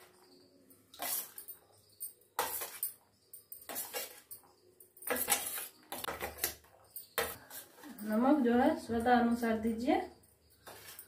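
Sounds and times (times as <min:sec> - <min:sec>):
spoon scraping a metal plate: 0:00.9 - 0:08.0.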